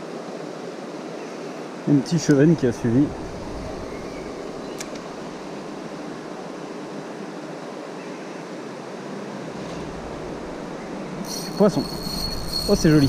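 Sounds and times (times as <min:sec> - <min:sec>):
stream water flowing: 0:00.0 - 0:13.0
sharp click: 0:04.7 - 0:05.1.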